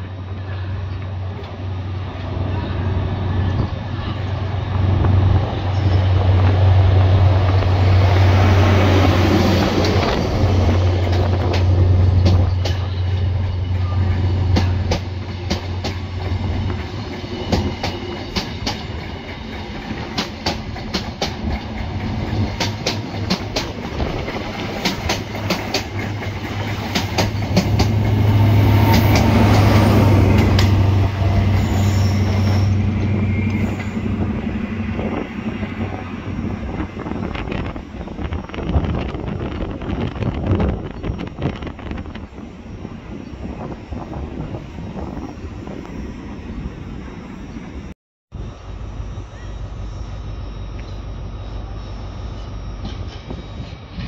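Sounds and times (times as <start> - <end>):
diesel train engine humming: 0.0 - 54.0
train wheels clicking over rail joints: 14.4 - 31.6.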